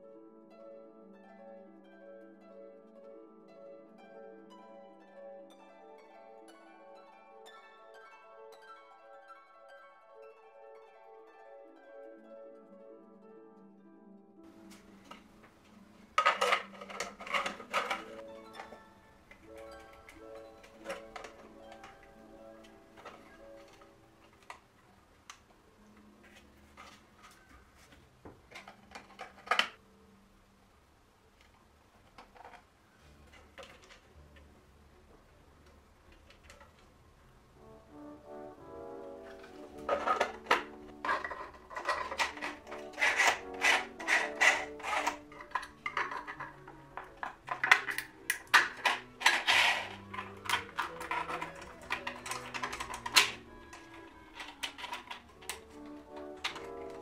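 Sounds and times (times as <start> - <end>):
soft background music: 0.0 - 57.0
plastic parts clattering: 14.5 - 29.8, 31.4 - 34.5, 36.0 - 36.9, 38.9 - 57.0.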